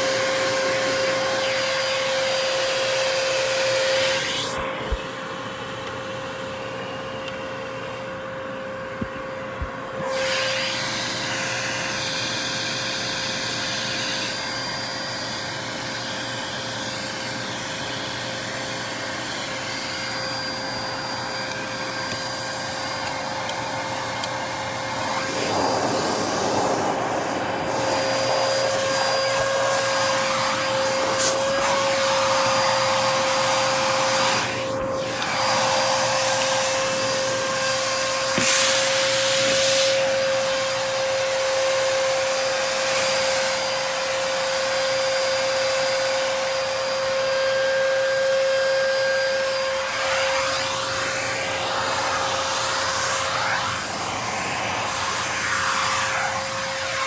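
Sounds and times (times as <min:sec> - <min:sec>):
vacuum cleaner motor whine: 0:00.0 - 0:57.0
vacuum suction rushing: 0:22.3 - 0:40.1, 0:49.7 - 0:57.0.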